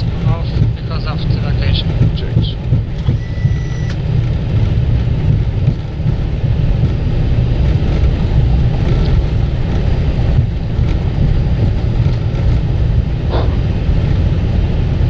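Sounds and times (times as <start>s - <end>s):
wheels rumbling on runway: 0.0s - 15.0s
rushing airflow: 7.0s - 15.0s.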